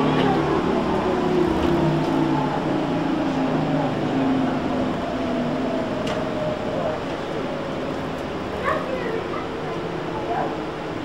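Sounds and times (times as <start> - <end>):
road noise: 0.0 - 11.0.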